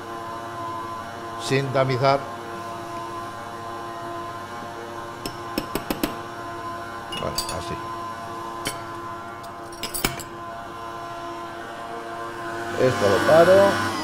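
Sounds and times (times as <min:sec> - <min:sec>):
stand mixer motor humming: 0:00.0 - 0:14.0
spoon clinking against bowl: 0:07.1 - 0:07.8.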